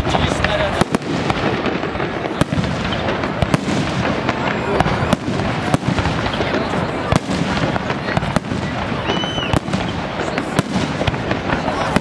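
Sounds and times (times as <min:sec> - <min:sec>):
firework crackle: 0:00.0 - 0:12.0
firework shells bursting: 0:00.0 - 0:12.0
firework whistle: 0:04.5 - 0:12.0.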